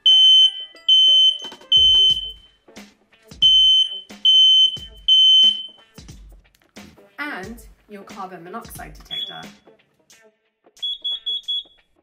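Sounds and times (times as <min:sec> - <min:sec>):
smoke alarm beeping: 0:00.0 - 0:02.5, 0:03.4 - 0:05.8, 0:09.1 - 0:09.6, 0:10.8 - 0:11.8
background music with soft beat: 0:00.0 - 0:12.0.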